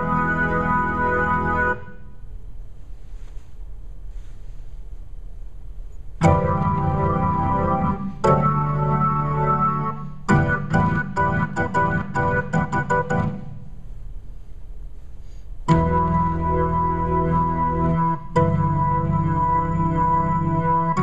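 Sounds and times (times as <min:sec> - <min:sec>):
electronic keyboard organ tone: 0:00.0 - 0:02.0, 0:06.2 - 0:13.6, 0:15.7 - 0:21.0.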